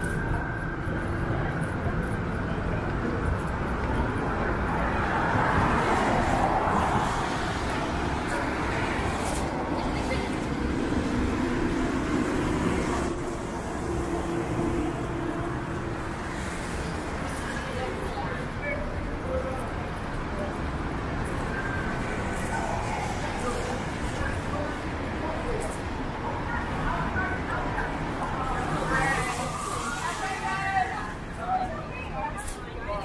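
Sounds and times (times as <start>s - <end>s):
cars passing on wet road: 3.3s - 31.4s.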